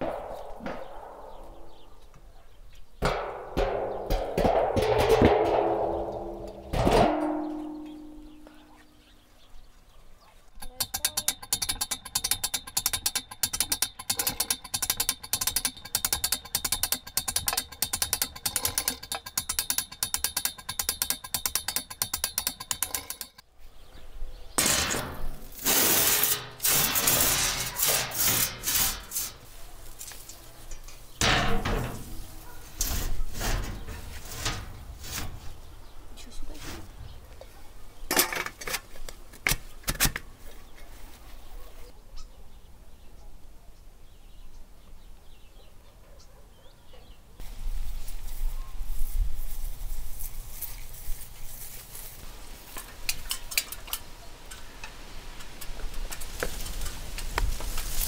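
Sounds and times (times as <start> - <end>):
metal clang: 3.0 - 8.6, 10.6 - 23.4, 24.6 - 29.5, 30.7 - 35.5
hand-cranked winch clicking: 10.6 - 23.4
metal plates scraping over brick: 10.6 - 23.4, 24.6 - 29.6, 30.8 - 35.7.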